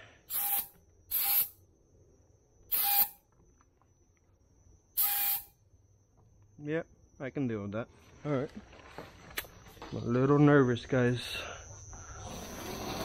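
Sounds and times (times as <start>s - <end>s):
spray gun hissing with whistle: 0.3s - 1.6s, 2.7s - 3.2s, 5.0s - 5.5s.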